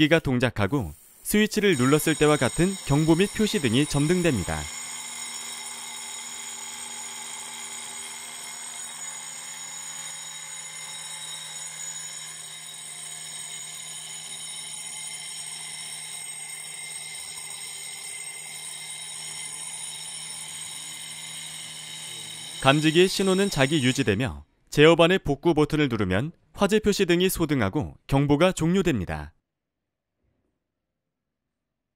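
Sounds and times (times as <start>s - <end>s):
fire alarm bell ringing: 1.6s - 24.2s.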